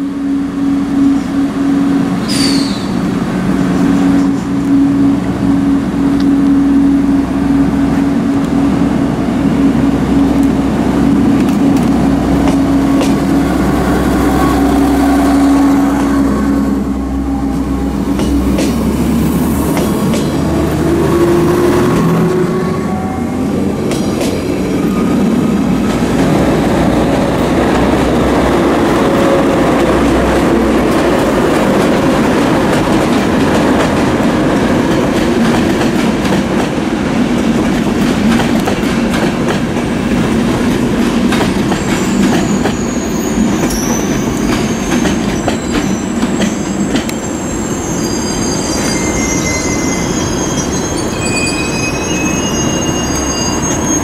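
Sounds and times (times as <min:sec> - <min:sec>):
train wheels rumbling on rails: 0:00.0 - 0:54.0
high wheel squeals: 0:41.7 - 0:54.0.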